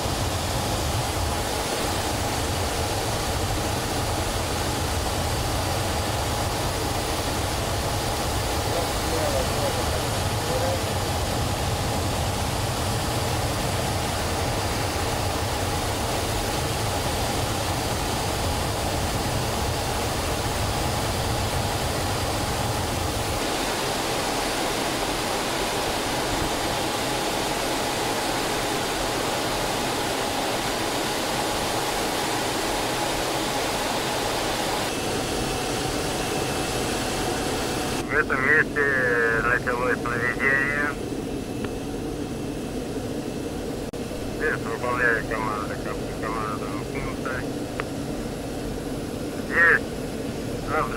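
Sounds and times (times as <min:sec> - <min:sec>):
jet engine running: 0:00.0 - 0:50.9
rushing air in cockpit: 0:00.0 - 0:50.9.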